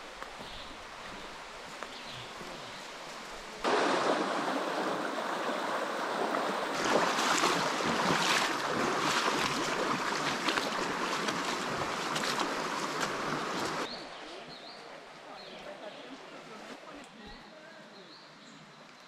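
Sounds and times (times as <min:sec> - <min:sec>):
small water splashes: 0:00.0 - 0:13.9
stream running over stones: 0:00.0 - 0:14.0.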